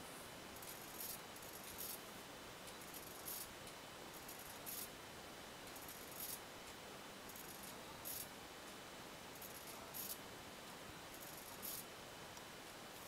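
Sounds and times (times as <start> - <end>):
pen scratching hiss: 0.6 - 2.0, 2.8 - 3.5, 4.2 - 4.9, 5.8 - 6.4, 7.3 - 8.3, 9.4 - 10.2, 11.2 - 11.8.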